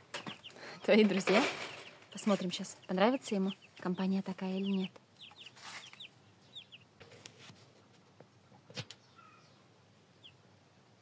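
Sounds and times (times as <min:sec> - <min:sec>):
chicks peeping: 0:00.0 - 0:10.5.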